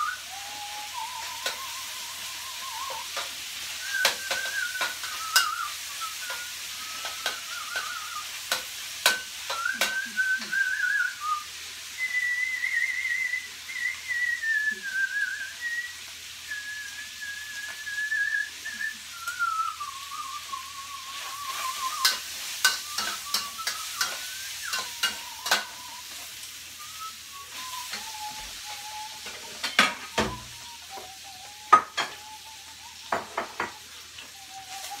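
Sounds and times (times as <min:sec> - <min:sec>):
meat sizzling in a wok: 0:00.0 - 0:35.0
person whistling a tune: 0:00.0 - 0:35.0
spatula scraping a wok: 0:21.1 - 0:26.5.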